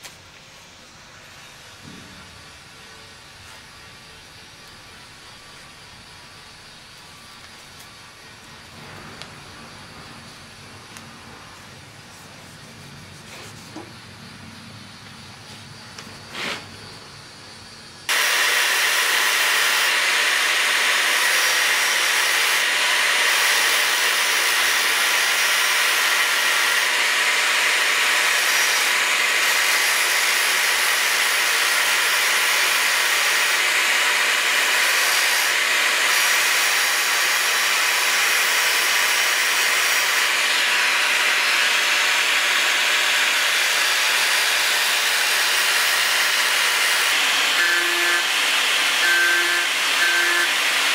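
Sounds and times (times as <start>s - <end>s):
angle grinder cutting steel: 18.1s - 50.9s.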